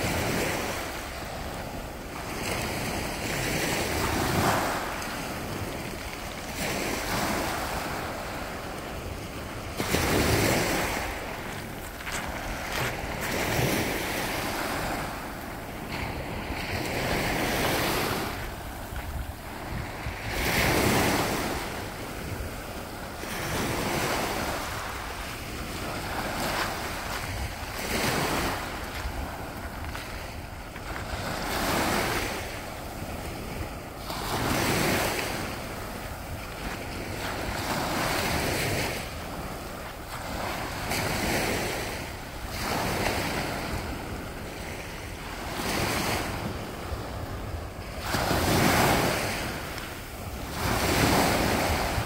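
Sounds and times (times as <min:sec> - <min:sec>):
small waves washing on pebbly beach: 0:00.0 - 0:52.0
steady surf hiss: 0:00.0 - 0:52.0.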